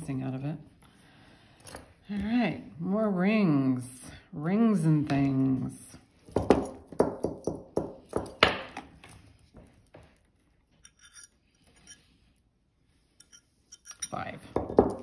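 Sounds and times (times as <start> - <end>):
metal rings clinking: 10.7 - 12.2, 13.2 - 15.0.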